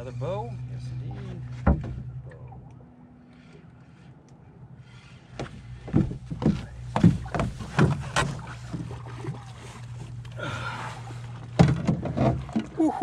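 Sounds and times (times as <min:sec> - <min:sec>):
outboard motor idling: 0:00.0 - 0:13.0
knocks and thumps in boat: 0:01.2 - 0:02.5, 0:05.3 - 0:13.0.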